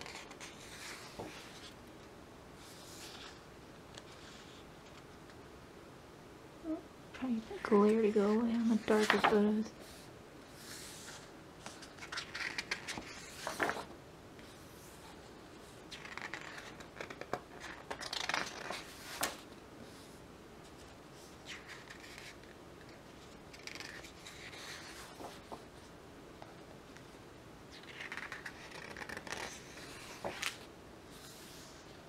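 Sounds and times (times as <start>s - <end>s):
book pages turning: 7.2s - 10.0s, 10.6s - 14.6s, 15.9s - 19.5s, 27.7s - 31.9s.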